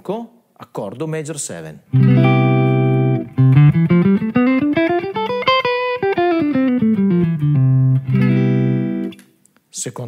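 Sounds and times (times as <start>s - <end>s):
electric guitar chord: 1.9s - 9.2s
electric guitar scale picked: 1.9s - 9.2s.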